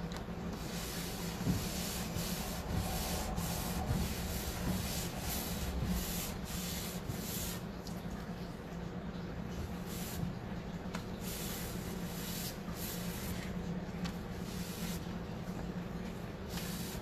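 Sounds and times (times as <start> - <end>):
cloth rag rubbing on wood: 0.6 - 7.6, 16.4 - 17.0.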